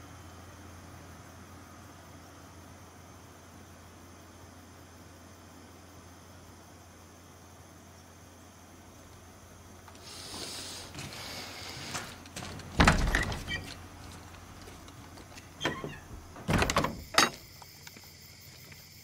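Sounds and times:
wooden door shutting: 11.0 - 17.5
heavy wooden knocks and bangs: 12.4 - 17.5.

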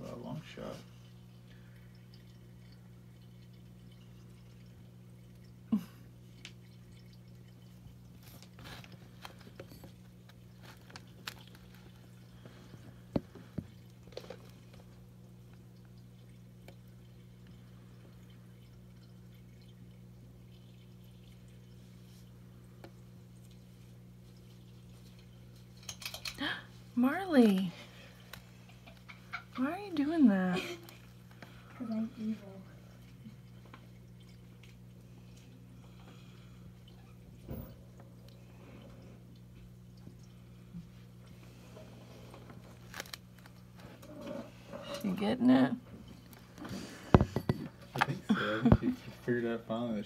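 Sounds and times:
low electrical hum: 0.0 - 50.0.

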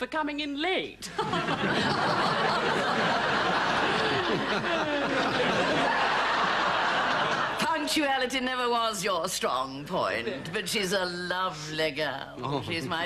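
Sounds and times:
audience laughing: 1.1 - 7.7.

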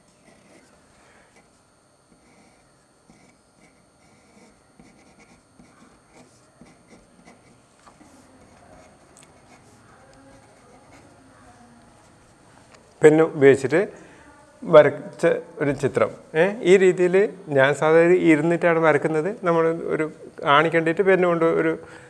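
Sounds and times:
pen nib scratching on paper: 0.1 - 0.7, 1.3 - 12.2.

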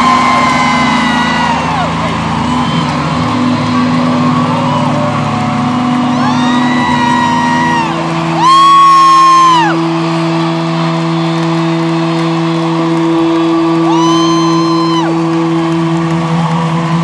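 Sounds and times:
crowd cheering and whooping: 0.0 - 17.0
fan shouting high-pitched woo: 6.1 - 9.8, 13.8 - 15.2.

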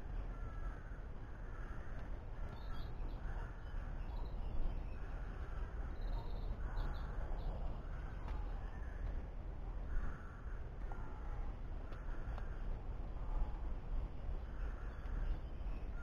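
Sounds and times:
crows cawing: 0.2 - 3.9, 9.8 - 12.7.

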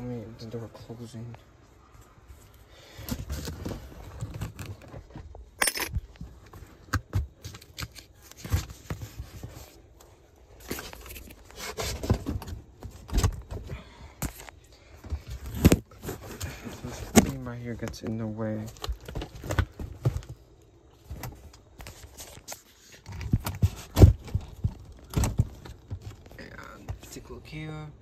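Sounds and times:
cardboard scraping and rustling: 3.0 - 5.3, 10.6 - 13.6, 21.0 - 26.2.

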